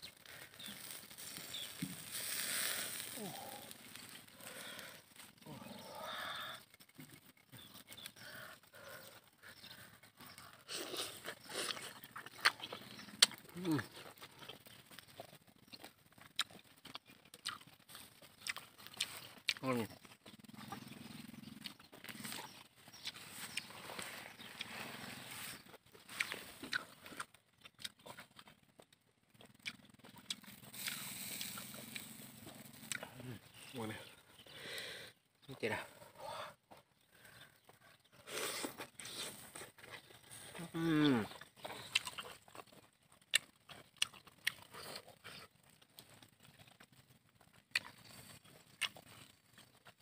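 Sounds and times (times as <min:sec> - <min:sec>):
wood fire crackling: 0:00.0 - 0:20.6, 0:21.6 - 0:50.0
biting and chewing: 0:00.0 - 0:50.0
man growling: 0:03.0 - 0:06.6.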